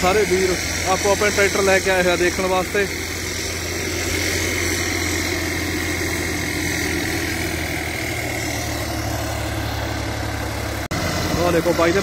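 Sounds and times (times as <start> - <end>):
diesel tractor engine running: 0.0 - 12.0.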